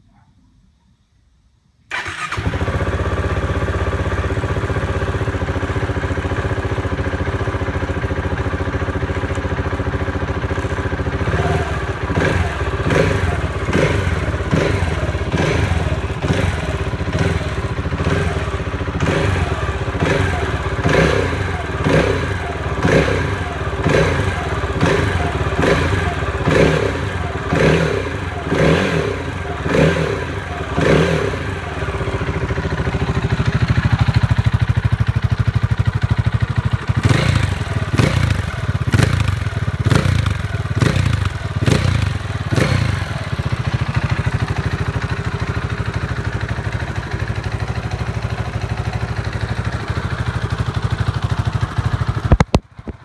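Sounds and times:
motorcycle engine revving and idling: 1.9 - 53.0.

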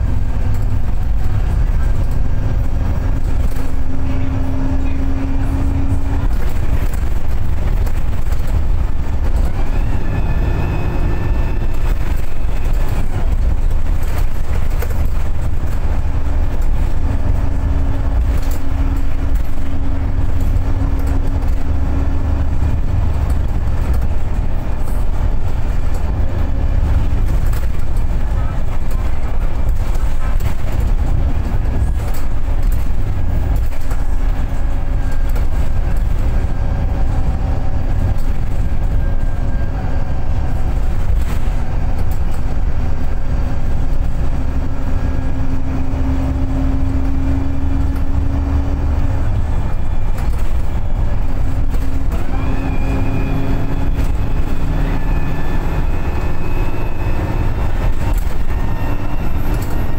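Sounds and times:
bus diesel engine drone: 0.0 - 59.9
road rumble: 0.0 - 59.9
rising whine: 9.3 - 12.7, 52.0 - 59.9.

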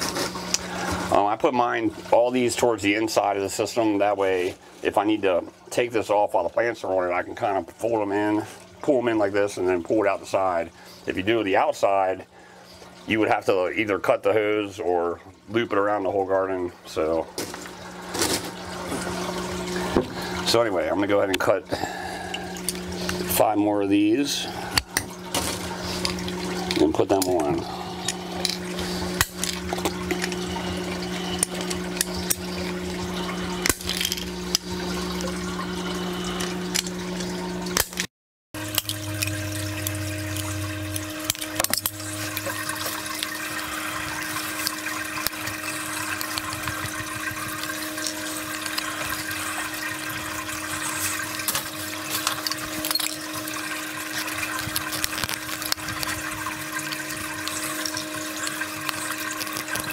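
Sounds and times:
machine hum: 16.8 - 59.9.

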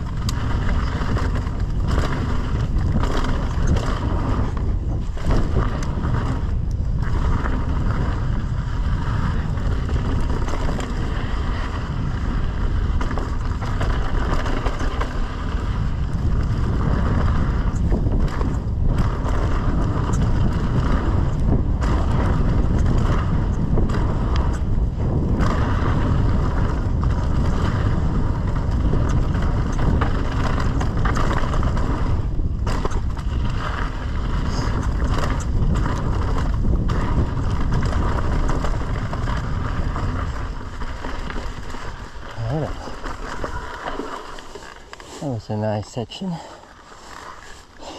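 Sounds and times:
bike rattling: 0.0 - 47.9
tyres rolling on gravel: 0.0 - 47.9
wind on microphone: 0.0 - 47.9.

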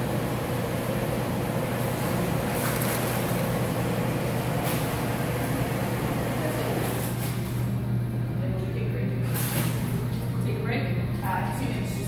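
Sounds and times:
treadmill humming: 0.0 - 9.1
water sloshing and splashing: 1.8 - 3.8, 6.7 - 7.8, 9.2 - 10.7.

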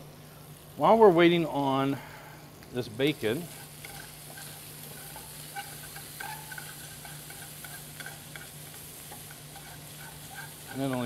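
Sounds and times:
bacon sizzling in a pan: 0.4 - 11.0
metal tongs scraping pan: 3.4 - 11.0.

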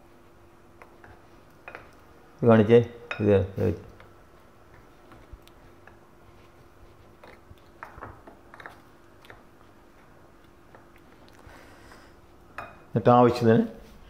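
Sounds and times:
faint steady hum: 0.0 - 14.0
food squishing in paste: 4.4 - 11.5.

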